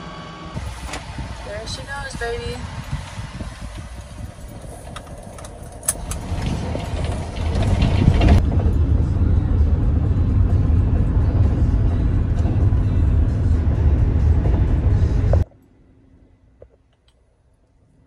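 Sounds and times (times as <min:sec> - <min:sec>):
van cabin road and engine rumble: 0:00.0 - 0:18.0.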